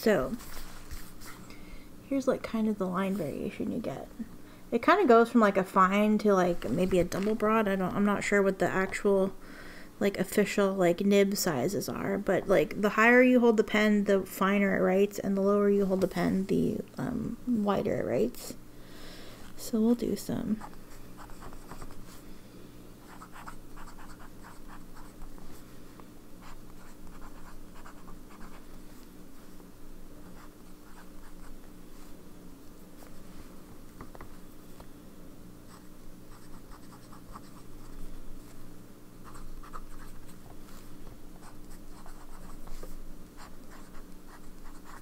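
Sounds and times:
low steady hum: 0.0 - 45.0
pen nib scratching on paper: 23.1 - 25.2, 41.4 - 45.0.

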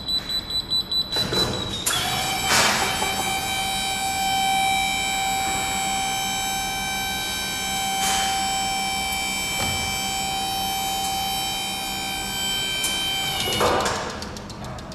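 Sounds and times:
pallet changer whining: 0.1 - 14.9.

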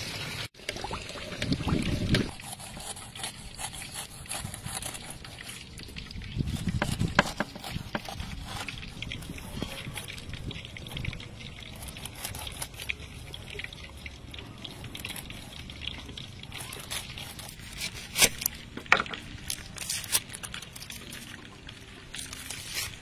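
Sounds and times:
knife cutting pineapple: 2.3 - 5.6, 6.4 - 13.4, 14.5 - 18.6, 19.4 - 21.2.

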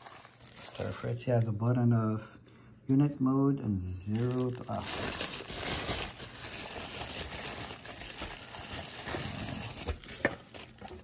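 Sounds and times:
plastic bag crinkling: 0.0 - 1.5, 4.1 - 11.0.

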